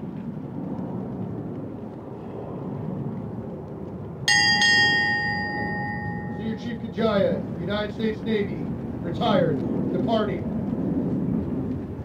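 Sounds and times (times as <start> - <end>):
outdoor background noise: 0.0 - 12.0
ship's bell ringing: 4.3 - 7.0.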